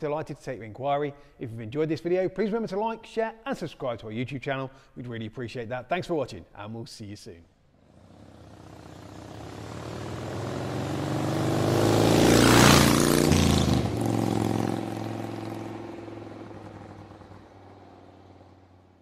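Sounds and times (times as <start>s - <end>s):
motorcycle engine revving past: 7.8s - 19.0s.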